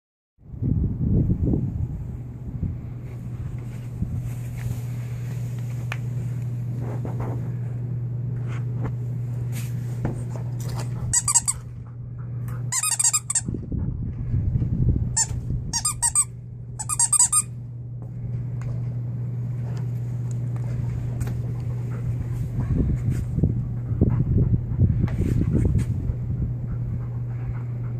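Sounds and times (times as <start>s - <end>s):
low hum: 0.4s - 27.9s
dog toy squeaker squeaking: 11.1s - 11.6s, 12.7s - 13.5s, 15.2s - 17.5s.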